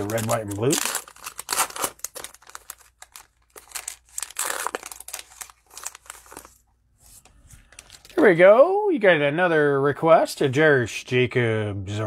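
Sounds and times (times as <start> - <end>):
plastic wrapper crinkling and tearing: 0.0 - 6.6, 7.6 - 8.3.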